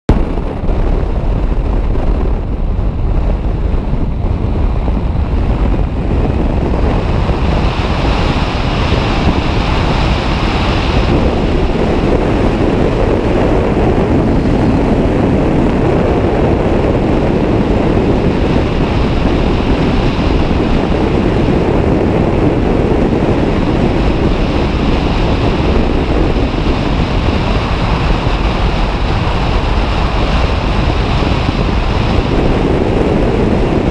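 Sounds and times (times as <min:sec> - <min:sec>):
wind blasting microphone: 0:00.1 - 0:33.9.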